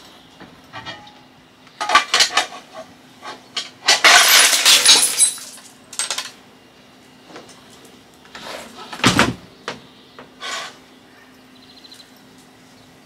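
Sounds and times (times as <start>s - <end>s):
glass panel shattering: 3.8s - 6.2s.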